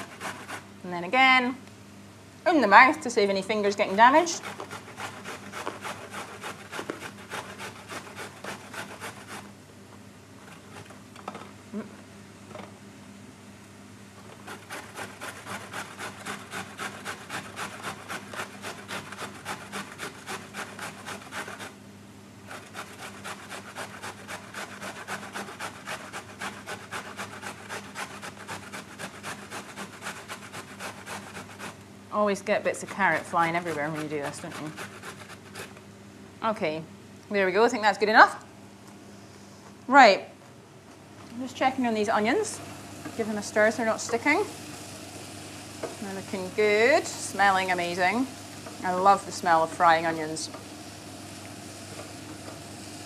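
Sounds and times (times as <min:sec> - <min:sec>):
carrot grating on metal grater: 0:00.0 - 0:00.6, 0:04.1 - 0:09.5, 0:14.4 - 0:21.8, 0:22.5 - 0:31.8, 0:32.7 - 0:35.8.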